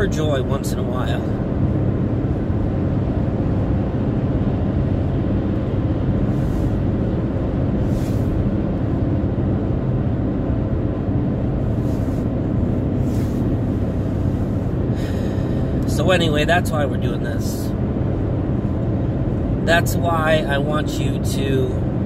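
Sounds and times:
car road and engine rumble: 0.0 - 22.0
faint short hisses: 7.8 - 8.4, 13.0 - 13.5.

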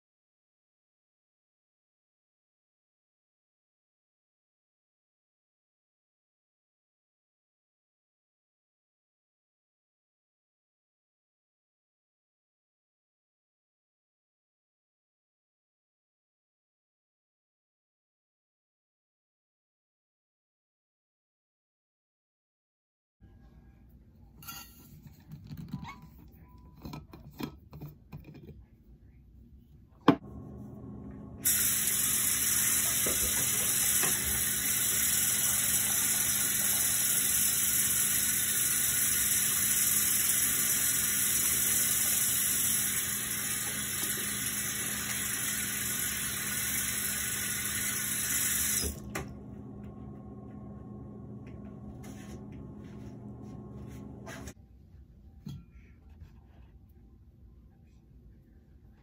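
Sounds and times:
faucet running: 31.0 - 50.3.

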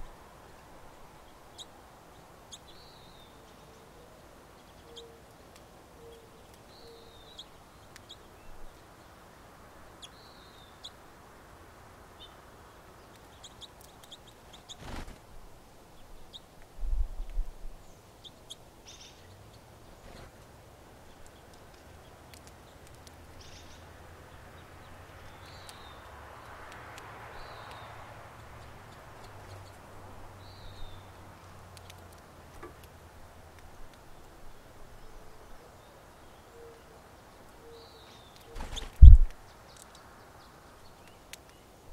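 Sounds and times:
songbirds chirping: 0.0 - 41.9
low thumps: 38.9 - 39.3.

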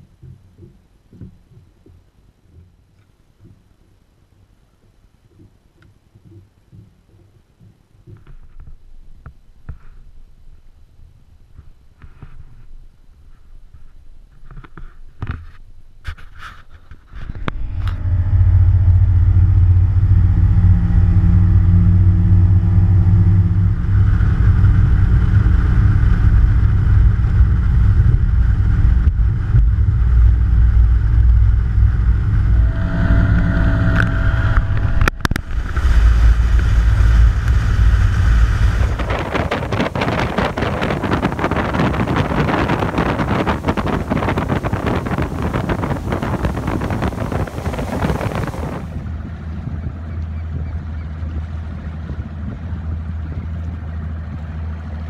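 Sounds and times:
wind buffeting microphone: 16.7 - 55.0
boat motor droning: 17.3 - 55.0
water rushing: 27.7 - 49.4.

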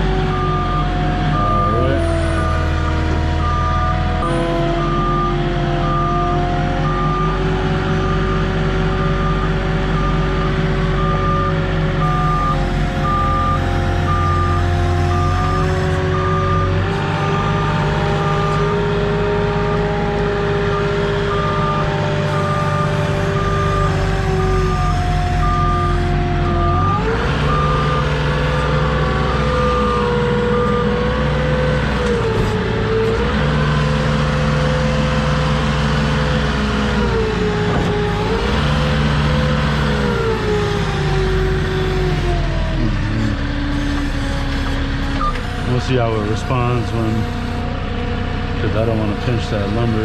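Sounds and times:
forklift engine running: 0.0 - 50.0
reverse alarm beeping: 0.3 - 18.7, 20.7 - 31.0.

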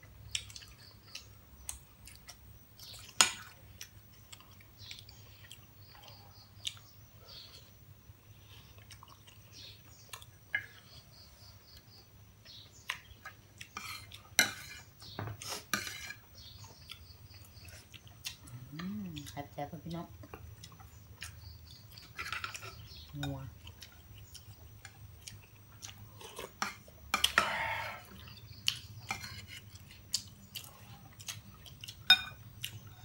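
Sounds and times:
metal spoon clinking on plates: 13.8 - 14.8, 22.0 - 23.4, 32.0 - 32.5.

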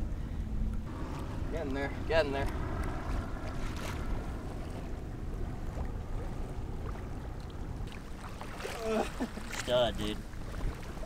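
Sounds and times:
wind buffeting microphone: 0.0 - 11.0
water washing around boat: 0.7 - 11.0.

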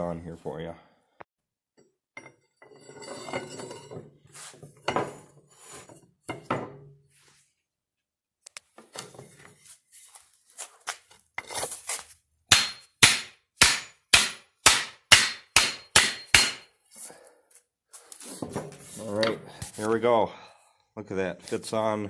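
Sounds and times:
axe knocking on wooden block: 12.5 - 16.7.

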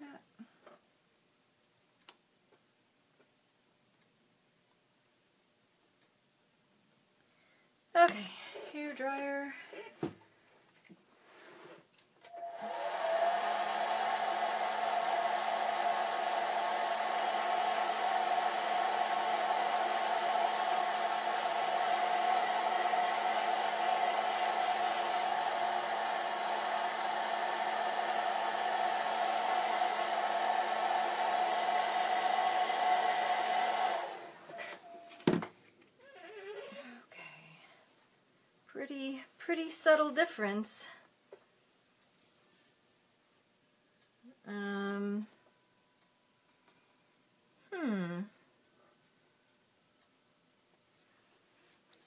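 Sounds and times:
hair dryer blowing: 12.3 - 35.0.

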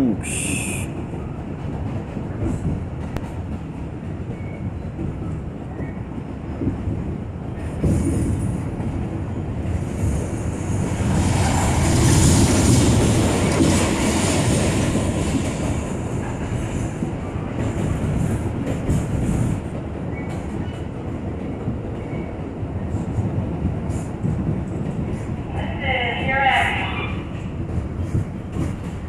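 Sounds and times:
subway train rumbling: 0.0 - 29.0.

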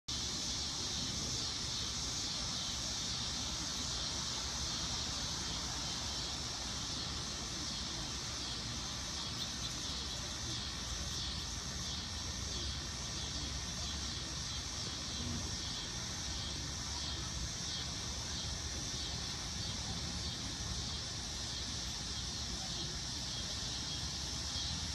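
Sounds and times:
cicada buzzing: 0.1 - 24.9.

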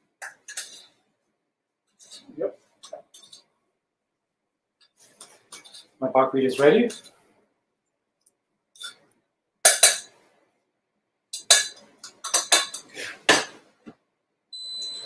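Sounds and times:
cooktop electronic beep: 14.5 - 15.0.

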